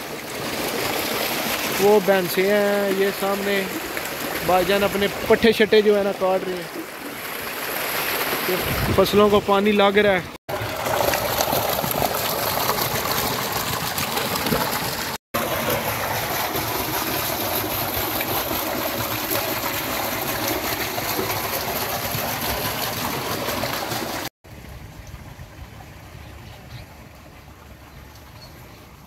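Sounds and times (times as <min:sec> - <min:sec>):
water jet splashing into tank: 0:00.0 - 0:09.3, 0:10.4 - 0:24.3.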